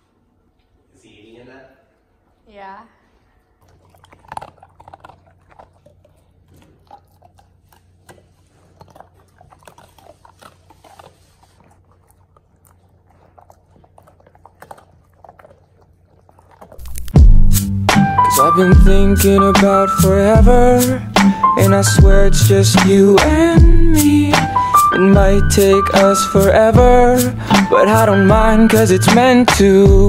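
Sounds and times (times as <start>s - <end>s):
dogs crunching biscuits: 3.5s - 17.5s.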